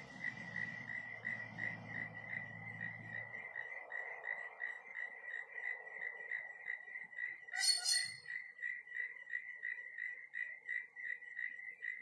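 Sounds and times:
cricket chirping: 0.0 - 12.0.

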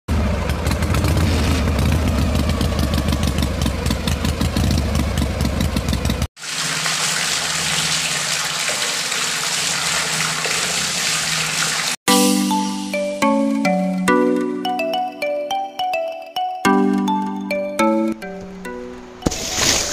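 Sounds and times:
miniature engine chugging: 0.1 - 6.3.

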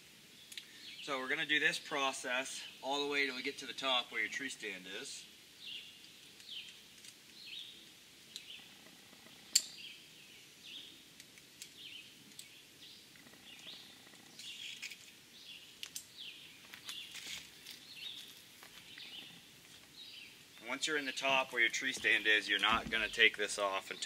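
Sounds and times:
songbird chirping: 2.6 - 24.0
rope and belt clicks and rustles: 14.3 - 15.2, 15.8 - 19.9.

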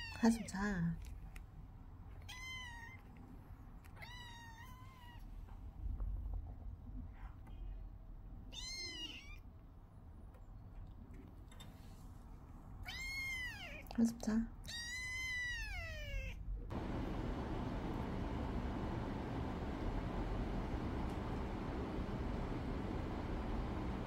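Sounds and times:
kitten meowing: 2.2 - 3.1, 4.0 - 5.3, 8.5 - 9.4, 12.8 - 13.9, 14.6 - 16.4.

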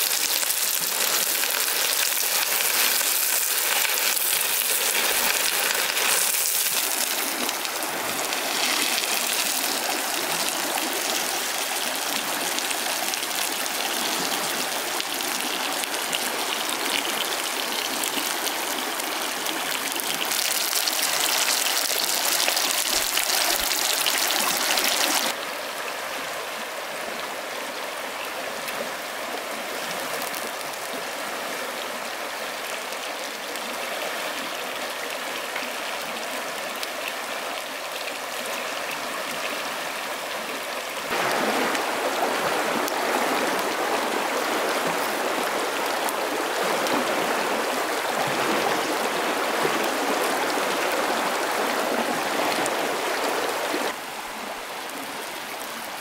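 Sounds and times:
chicken sizzling in a frying pan: 0.0 - 7.6, 8.3 - 10.4, 20.2 - 25.4
stream running over stones: 0.0 - 56.0.

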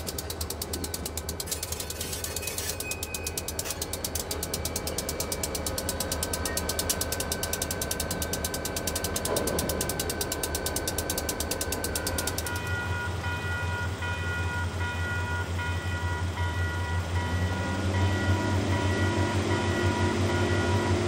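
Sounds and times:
fast even ticking: 0.0 - 1.5, 3.0 - 12.7
diesel locomotive engine drone: 0.0 - 21.0.

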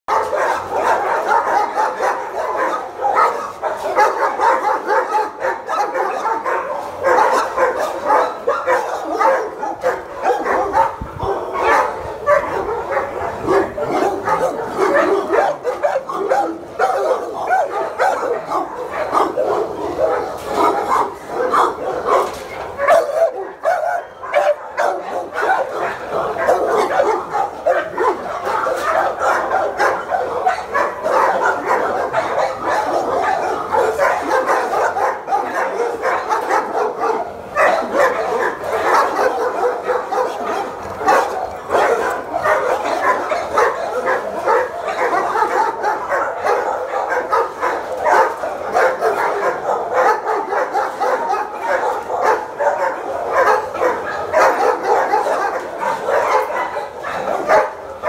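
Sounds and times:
many dogs barking: 0.0 - 58.0.

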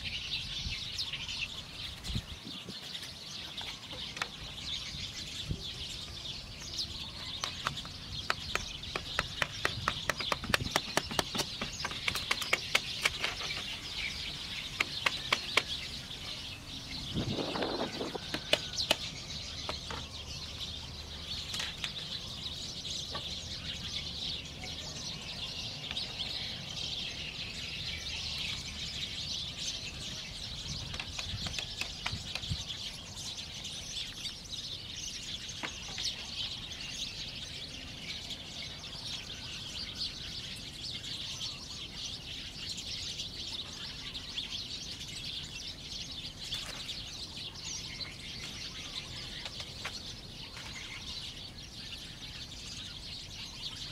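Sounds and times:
birds chirping: 0.0 - 53.9
bamboo poles knocking: 7.5 - 13.6, 14.8 - 15.8, 17.6 - 20.1.

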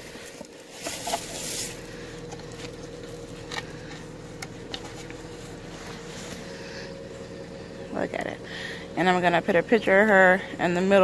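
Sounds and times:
cardboard box rustling and scraping: 0.0 - 6.6.

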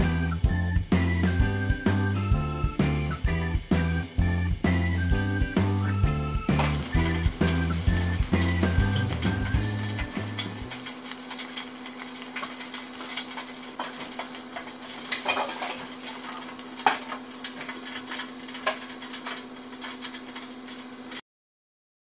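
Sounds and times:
oil sizzling in deep fryer: 0.0 - 21.2
oil popping: 6.6 - 21.2.

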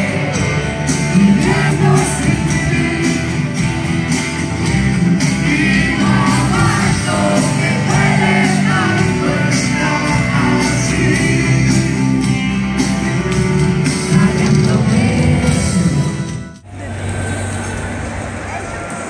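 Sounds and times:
man singing lead: 0.0 - 3.7, 5.1 - 12.3, 13.8 - 16.1
live rock band playing: 0.0 - 16.7.

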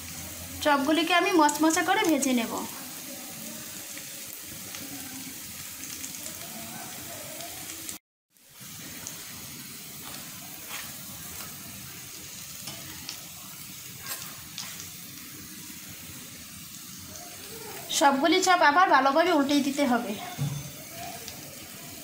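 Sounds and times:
oil sizzling and crackling: 0.0 - 22.0.

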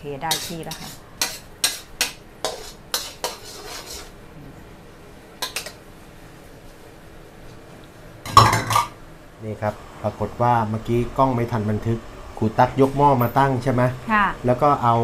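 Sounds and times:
metal spatula scraping a wok: 0.3 - 4.2.

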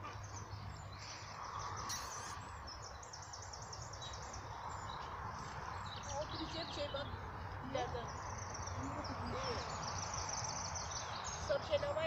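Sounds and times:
small birds chirping: 0.0 - 12.0
rapid high bird trill: 1.8 - 2.5.

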